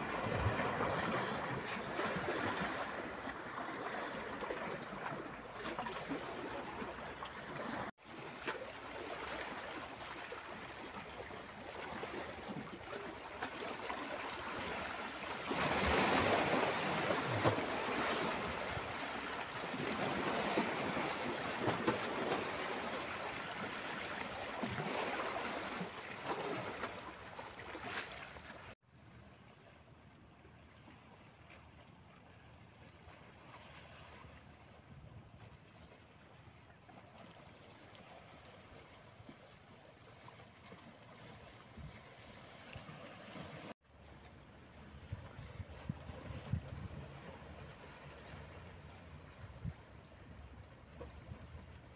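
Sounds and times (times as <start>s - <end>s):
waves splashing against rocks: 0.0s - 28.8s.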